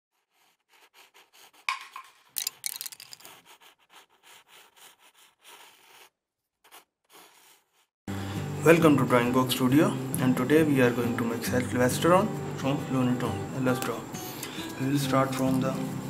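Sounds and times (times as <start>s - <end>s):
pencil scribbling on paper: 0.1s - 2.0s, 3.2s - 7.9s.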